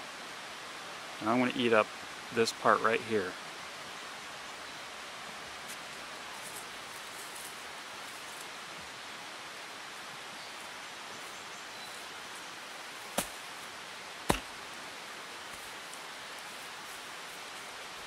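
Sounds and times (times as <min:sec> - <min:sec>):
steady hiss: 0:00.0 - 0:18.0
axe chopping into soil: 0:13.1 - 0:13.4, 0:14.2 - 0:14.6.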